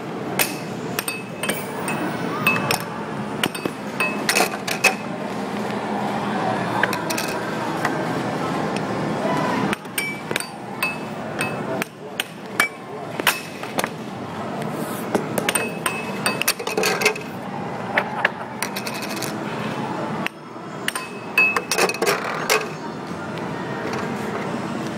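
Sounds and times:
air hockey puck clacking: 0.3s - 5.1s, 9.7s - 14.0s, 14.6s - 17.3s, 17.9s - 19.4s, 20.2s - 22.8s.

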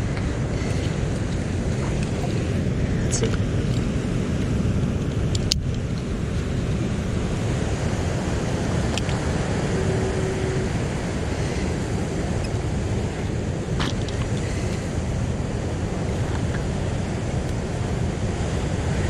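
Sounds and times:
ocean surf over rocks: 0.0s - 19.0s
wind rumble on microphone: 0.0s - 19.0s.

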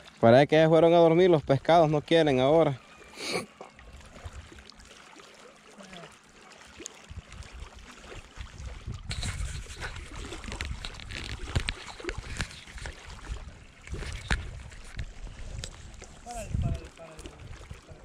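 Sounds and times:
waves lapping rocky shore: 0.0s - 18.0s
wind buffeting microphone: 8.5s - 18.0s.

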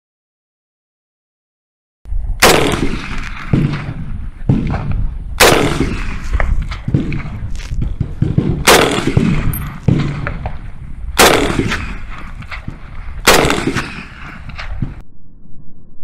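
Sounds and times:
rifle shots: 2.4s - 15.0s.

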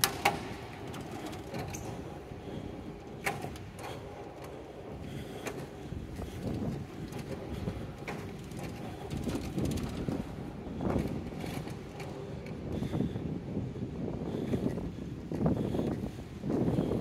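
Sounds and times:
cart wheels rattling on concrete: 0.0s - 13.0s.

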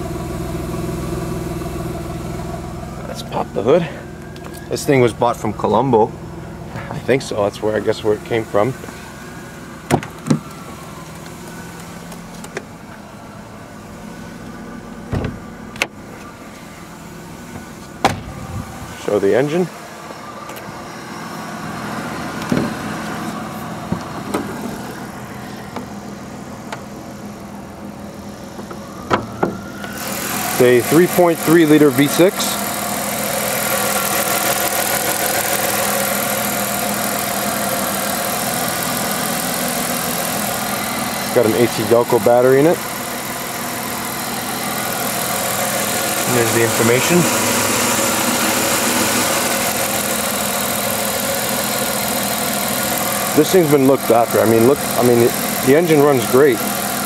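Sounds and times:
car engine idling: 0.0s - 57.0s
car door opening: 9.9s - 10.6s, 15.0s - 16.4s, 17.5s - 18.9s, 22.4s - 22.8s, 23.8s - 24.8s
hood release lever thud: 9.9s - 10.6s, 15.1s - 16.0s, 18.0s - 18.4s.

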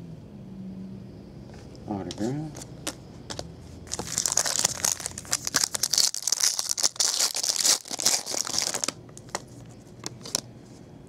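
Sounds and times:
plastic wrapper crinkling: 3.9s - 10.5s.

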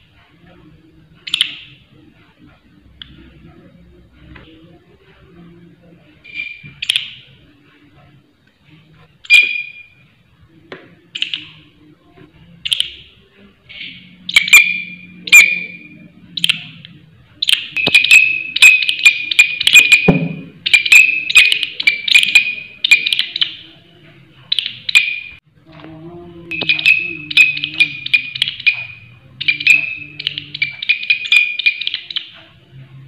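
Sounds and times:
katydid ringing chirps: 26.5s - 32.3s.

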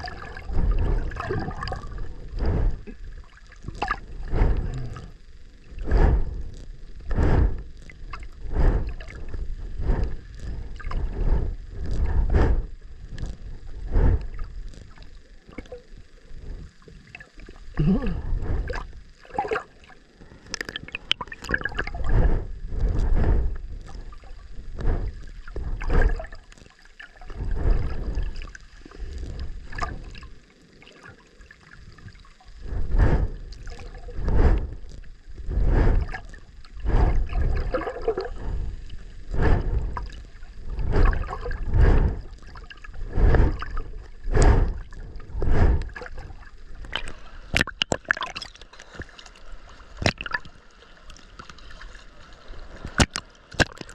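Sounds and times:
water sloshing and rushing: 0.0s - 5.2s, 20.5s - 53.9s.

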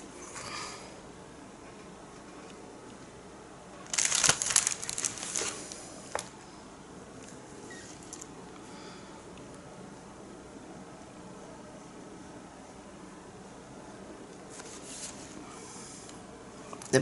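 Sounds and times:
crinkling and rustling material: 3.8s - 6.4s.

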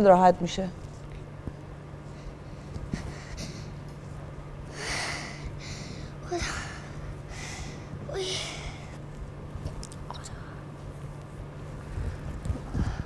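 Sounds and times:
low steady hum: 0.0s - 13.0s
boy breathing hard and gasping: 2.2s - 3.8s, 4.7s - 9.0s.

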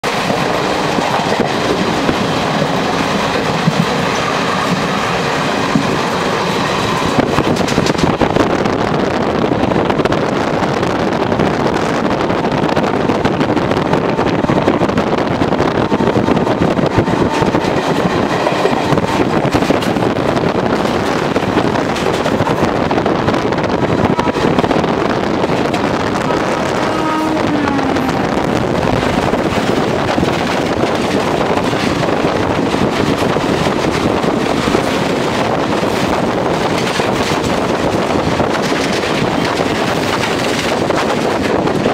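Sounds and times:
freight train passing: 0.0s - 41.9s
train wheels rolling over rails: 0.0s - 41.9s.

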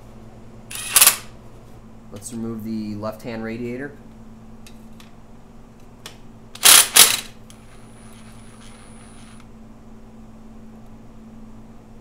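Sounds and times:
impact driver bursts: 6.6s - 7.3s.

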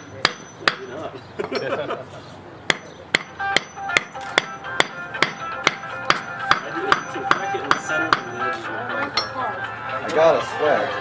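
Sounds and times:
hammer striking stone: 0.0s - 1.0s, 2.7s - 8.4s.

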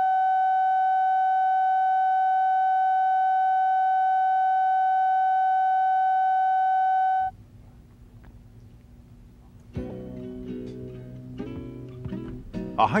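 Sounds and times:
steady reference tone: 0.0s - 7.3s
faint low hum and hiss: 0.0s - 13.0s.

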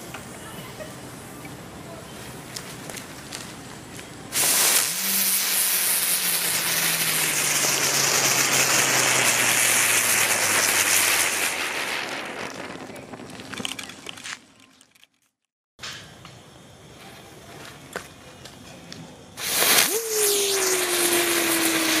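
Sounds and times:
firecracker hissing sparks: 0.0s - 14.2s, 19.2s - 22.0s.

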